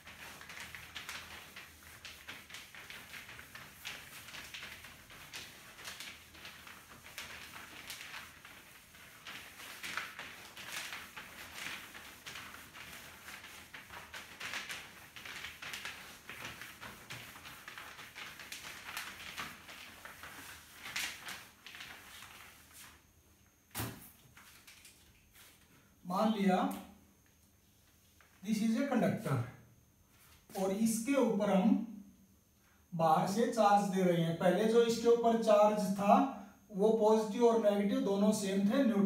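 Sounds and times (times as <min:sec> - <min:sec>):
cloth rubbing a whiteboard: 0:00.0 - 0:23.2.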